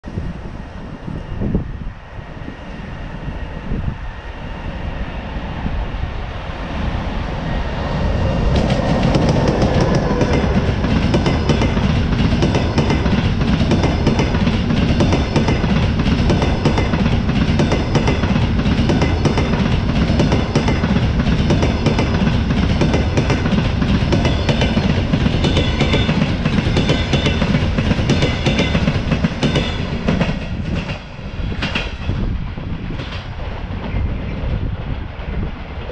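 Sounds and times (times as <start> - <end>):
train rumble: 0.0 - 35.9
train wheels clattering over rail joints: 8.6 - 32.3.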